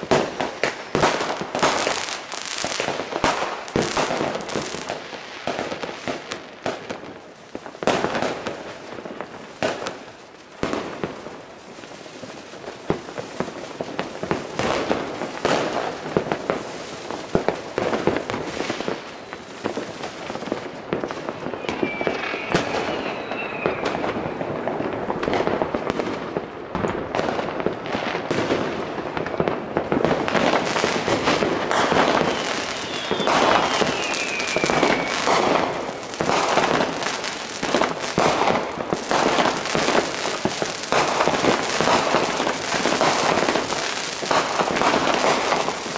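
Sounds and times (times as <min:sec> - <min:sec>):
firecrackers crackling: 0:00.0 - 0:45.9
firework bangs: 0:00.0 - 0:45.9
firework whistle sliding down: 0:21.4 - 0:24.7, 0:32.1 - 0:36.0.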